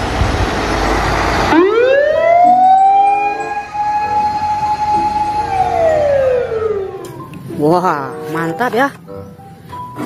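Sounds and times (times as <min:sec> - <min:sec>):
fire engine siren wailing: 0:00.1 - 0:07.2.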